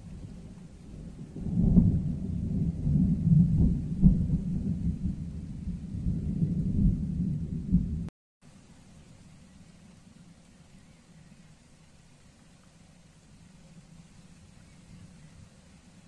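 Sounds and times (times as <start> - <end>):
thunder rumbling: 0.0 - 8.1.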